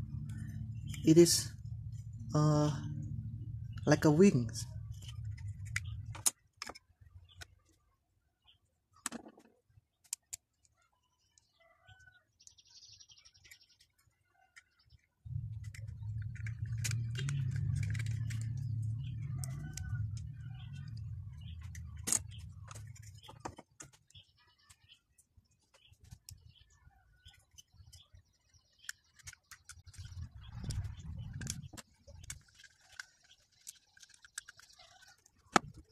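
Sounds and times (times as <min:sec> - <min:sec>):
low rumble: 0:00.0 - 0:06.2, 0:15.2 - 0:23.2, 0:29.9 - 0:32.4
birds chirping: 0:00.0 - 0:35.9
plastic toy parts clicking: 0:05.2 - 0:06.8, 0:09.0 - 0:10.8, 0:14.5 - 0:24.2, 0:28.8 - 0:35.9.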